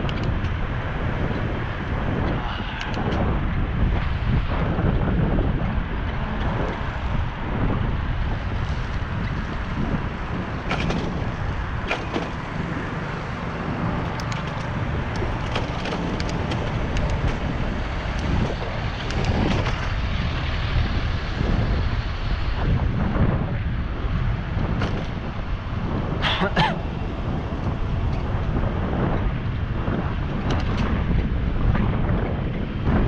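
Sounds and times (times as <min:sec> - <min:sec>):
wind rumbling on microphone: 0:00.0 - 0:33.0
light clicks and rattles: 0:14.0 - 0:17.5.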